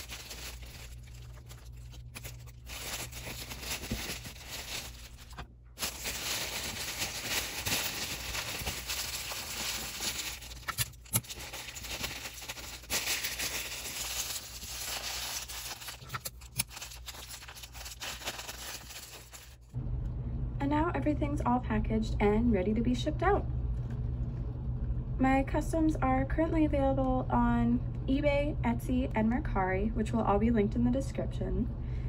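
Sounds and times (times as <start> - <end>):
tissue paper rustling: 0.0 - 19.7.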